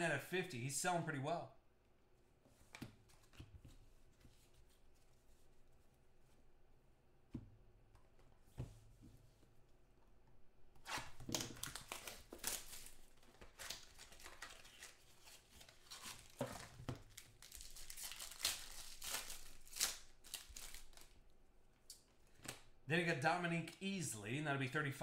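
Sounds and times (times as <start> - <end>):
foil wrappers tearing and crinkling: 11.4 - 21.2.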